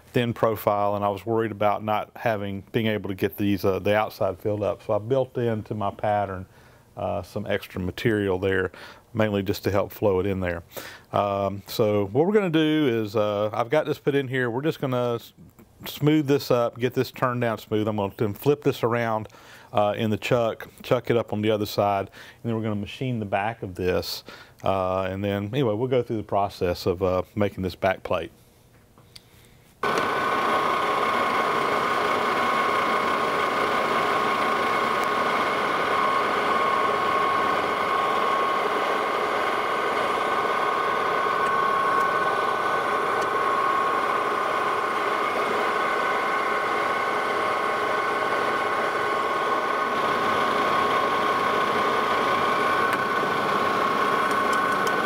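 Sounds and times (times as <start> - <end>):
metal lathe running with whine: 29.8 - 55.0.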